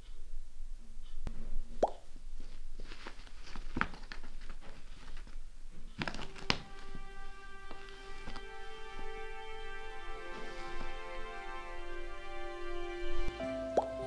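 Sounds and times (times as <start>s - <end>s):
music: 6.0s - 14.0s.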